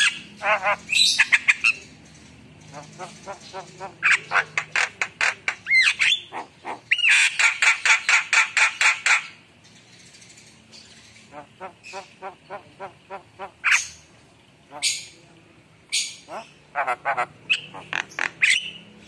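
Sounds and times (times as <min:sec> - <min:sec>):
bird harsh chattering: 0:02.7 - 0:09.3, 0:16.0 - 0:18.8.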